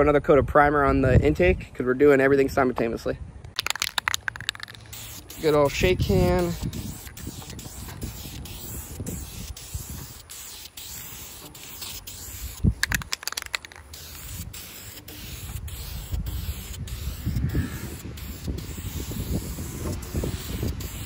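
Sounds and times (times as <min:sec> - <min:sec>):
quick sharp clicks: 0:03.5 - 0:05.0, 0:12.7 - 0:14.2
aerosol spray can hissing: 0:03.6 - 0:21.0.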